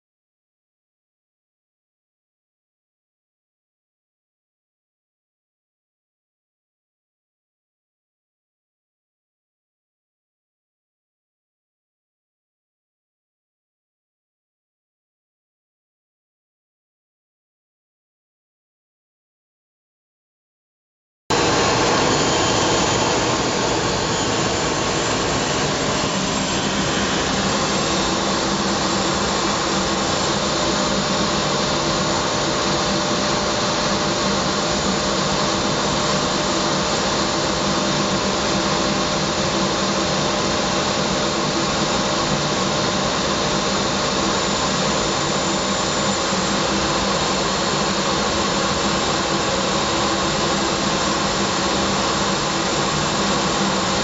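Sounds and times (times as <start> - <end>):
jet engine in flight: 21.3 - 54.0.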